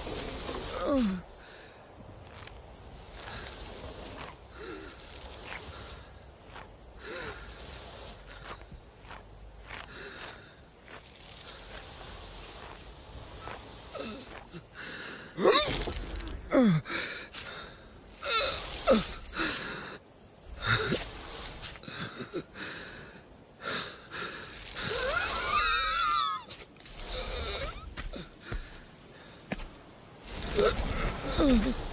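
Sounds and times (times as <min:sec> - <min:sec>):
heavy breaths: 0:00.0 - 0:15.4, 0:16.1 - 0:25.2
falling groans: 0:30.2 - 0:31.9.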